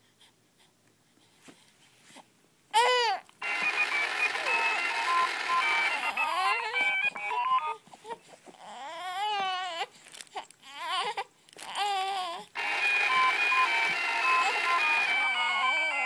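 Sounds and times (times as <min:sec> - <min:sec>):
infant fussing and crying: 0:02.8 - 0:03.3, 0:06.0 - 0:12.6, 0:14.2 - 0:16.0
electronic toy melody: 0:03.4 - 0:07.6, 0:12.6 - 0:16.0.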